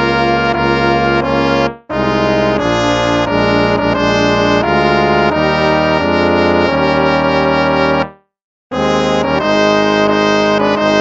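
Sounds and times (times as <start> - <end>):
brass hymn chords: 0.0 - 8.2.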